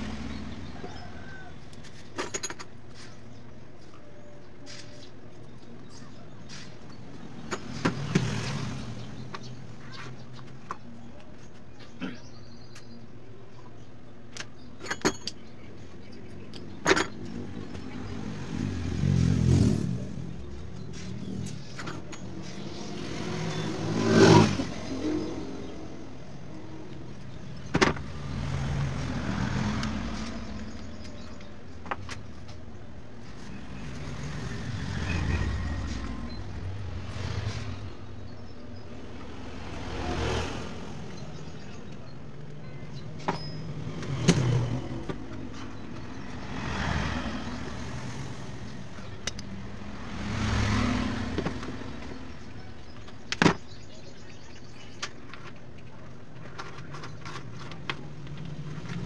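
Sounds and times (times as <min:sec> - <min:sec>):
road vehicles passing: 0:00.0 - 0:59.0
wires and tools clicking: 0:49.2 - 0:49.5.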